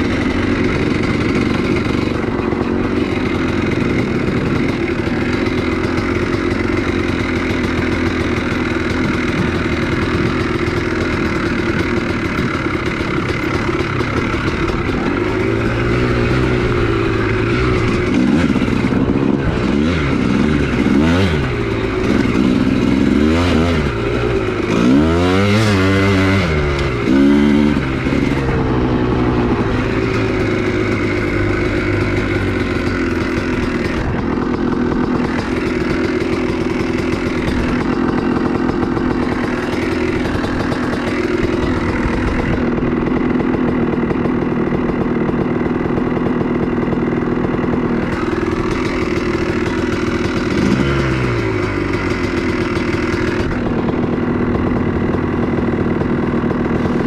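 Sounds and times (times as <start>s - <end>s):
two-stroke motorcycle engine revving: 0.0s - 57.0s.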